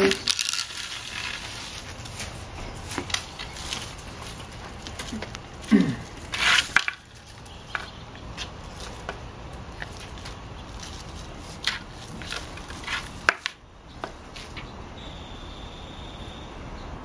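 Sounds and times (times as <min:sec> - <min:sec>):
metal rake scraping concrete: 0:00.0 - 0:09.0, 0:09.8 - 0:13.5.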